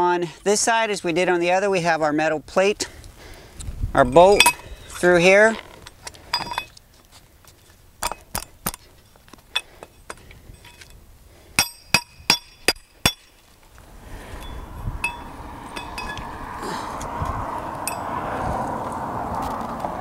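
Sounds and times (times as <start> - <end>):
steel hardware clinking and ringing: 4.1 - 5.1, 5.8 - 6.8, 8.0 - 11.0, 11.6 - 13.4, 14.3 - 16.4, 17.8 - 18.1
rushing noise: 13.8 - 20.0.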